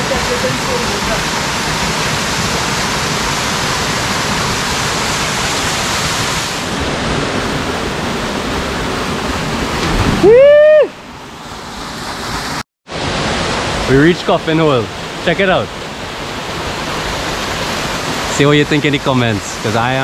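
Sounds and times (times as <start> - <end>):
waterfall rushing: 0.0 - 20.0
loud rising cry: 10.2 - 11.0.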